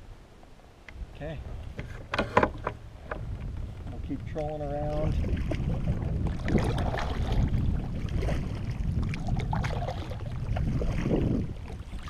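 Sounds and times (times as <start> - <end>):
paddle splashing through water: 3.8 - 12.0.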